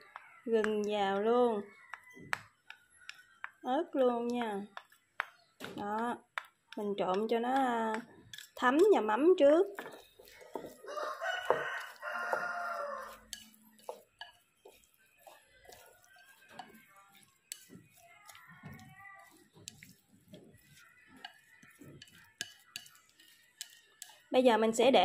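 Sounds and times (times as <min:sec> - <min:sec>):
chopsticks clicking in ceramic bowl: 0:00.0 - 0:09.0, 0:11.4 - 0:24.3
rooster crowing: 0:10.7 - 0:13.3.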